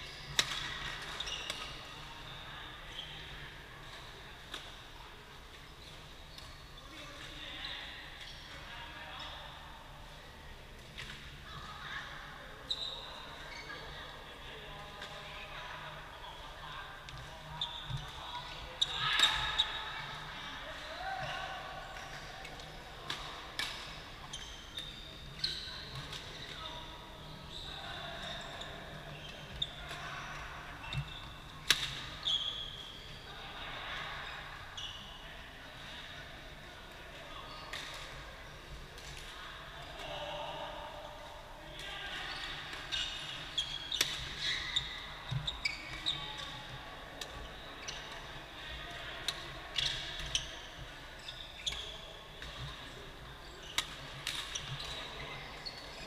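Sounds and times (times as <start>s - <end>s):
shoes squeaking on floor: 0.0s - 3.3s, 12.7s - 14.0s, 21.2s - 33.2s, 42.2s - 46.8s, 47.4s - 48.3s, 49.4s - 56.0s.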